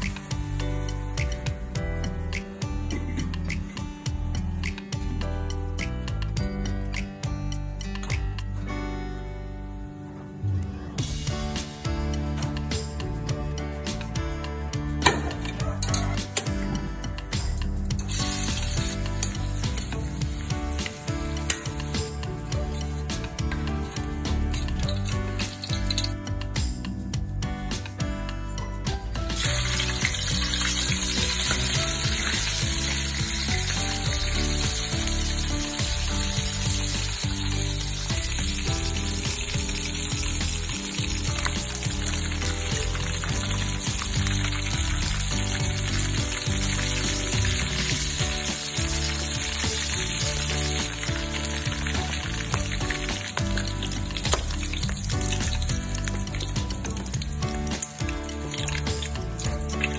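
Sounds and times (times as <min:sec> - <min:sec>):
background music: 0:00.0 - 0:59.9
chicken sizzling in oil: 0:18.0 - 0:26.1, 0:29.3 - 0:59.9.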